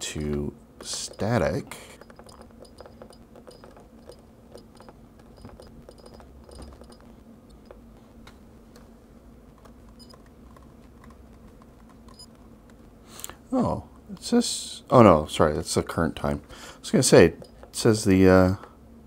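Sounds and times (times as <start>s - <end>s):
low electrical hum: 0.0s - 19.0s
keyboard typing clicks: 2.0s - 7.8s, 9.6s - 12.4s.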